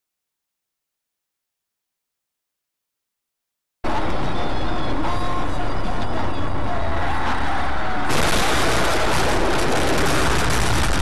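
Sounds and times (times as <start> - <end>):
vehicle and road noise: 3.8 - 11.0
loud rushing noise: 6.8 - 11.0.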